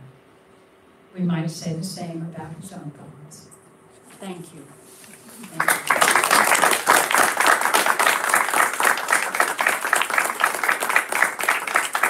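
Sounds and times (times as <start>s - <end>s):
audience applauding: 5.3s - 12.0s.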